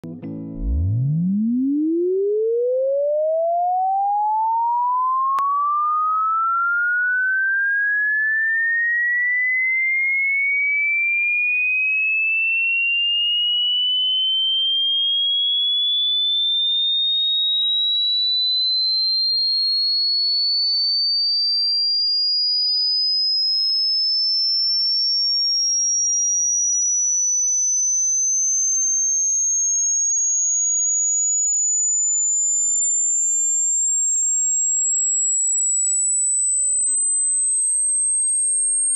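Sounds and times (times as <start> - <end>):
sine tone sweeping upward: 0.6 - 38.9.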